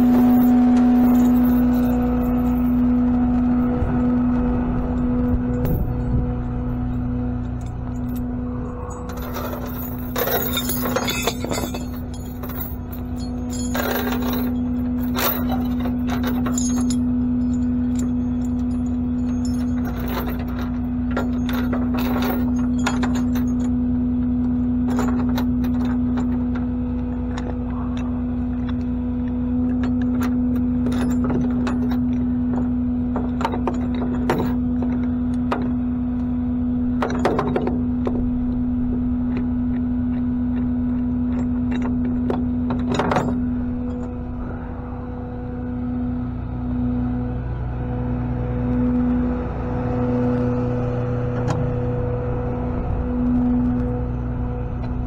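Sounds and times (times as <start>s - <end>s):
metallic clinks and rattles: 0.0s - 4.2s, 4.8s - 35.8s, 36.9s - 44.7s
truck engine humming: 0.0s - 55.0s.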